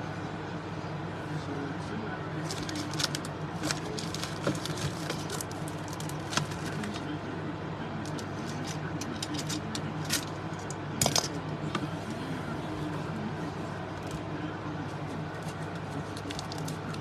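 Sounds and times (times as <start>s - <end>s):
card packs clicking and crinkling: 2.4s - 7.1s, 8.0s - 10.3s, 15.4s - 17.0s.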